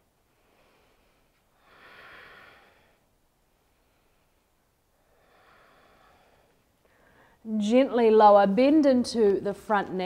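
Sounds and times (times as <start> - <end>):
faint drawn-out breath: 0.0 - 7.5.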